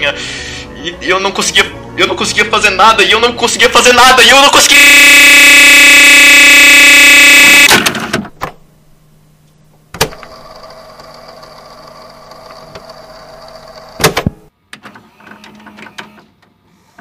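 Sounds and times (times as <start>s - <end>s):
harsh electronic buzz: 4.7s - 7.8s
low electrical hum: 8.2s - 14.6s.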